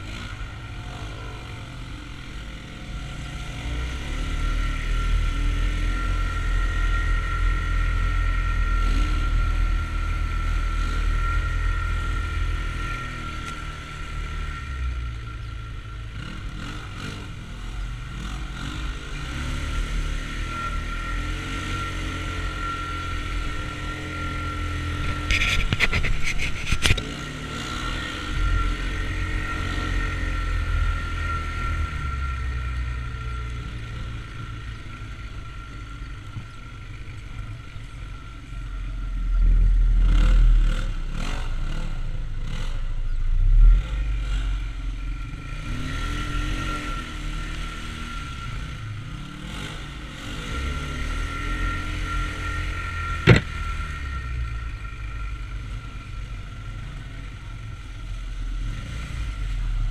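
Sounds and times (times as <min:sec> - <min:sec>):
off-road engine drone: 0:00.0 - 0:59.9
thin high whine: 0:00.0 - 0:59.9
sharp knocks: 0:53.2 - 0:53.5.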